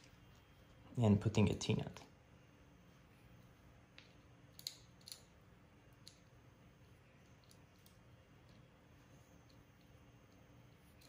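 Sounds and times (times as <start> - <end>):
small metal screw clicks: 4.0 - 5.3.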